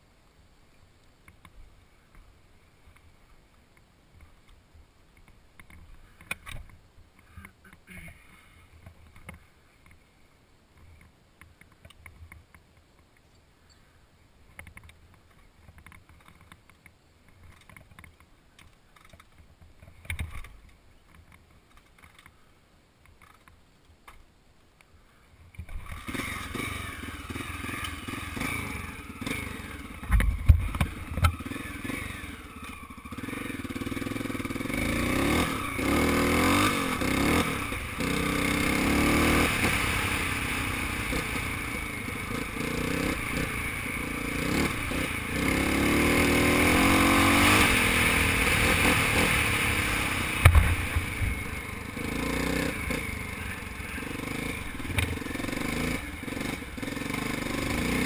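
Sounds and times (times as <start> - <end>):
dirt bike engine revving: 25.8 - 58.0.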